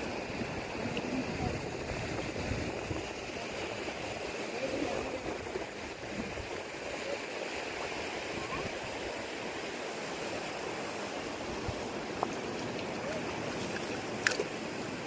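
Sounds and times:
sea surf on rocky shore: 0.0 - 15.0
hands splashing in rock pool: 12.2 - 14.6.

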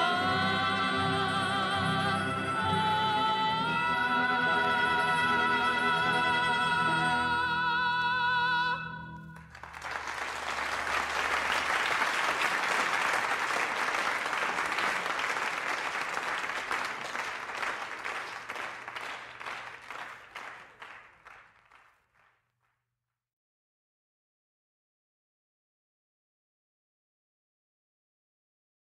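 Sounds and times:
person singing with vibrato: 0.0 - 9.4
audience applause: 9.3 - 22.4.

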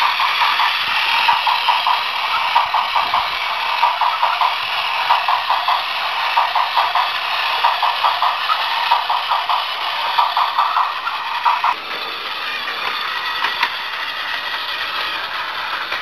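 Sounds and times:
toy train motor whir: 0.0 - 16.0
toy train wheels clattering on track: 0.0 - 16.0.

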